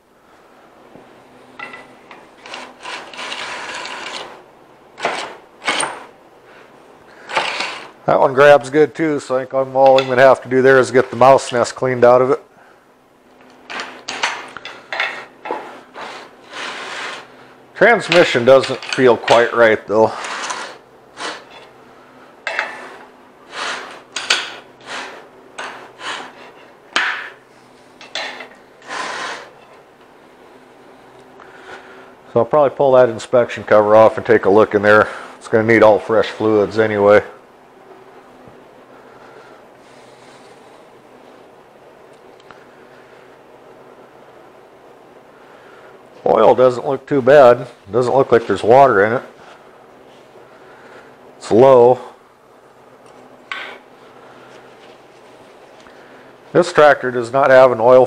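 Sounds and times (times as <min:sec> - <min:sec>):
rusty brake scraping and grinding: 0:01.6 - 0:04.4, 0:07.2 - 0:08.0, 0:20.1 - 0:21.7.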